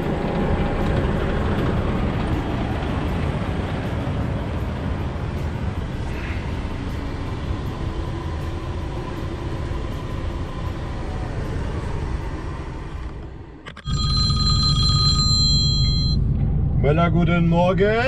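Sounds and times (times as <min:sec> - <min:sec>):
diesel truck engine rumble: 0:00.0 - 0:18.0
mobile phone ringtone: 0:13.7 - 0:16.3.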